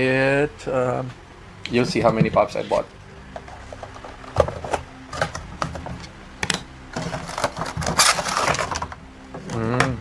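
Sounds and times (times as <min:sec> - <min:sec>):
plastic box crinkling and clicking: 0:03.5 - 0:09.0.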